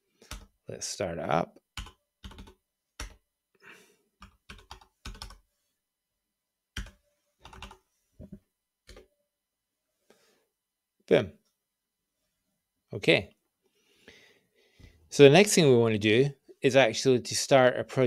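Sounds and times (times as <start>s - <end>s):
keyboard keystrokes typing: 1.8s - 3.2s, 4.2s - 5.4s, 6.8s - 7.8s.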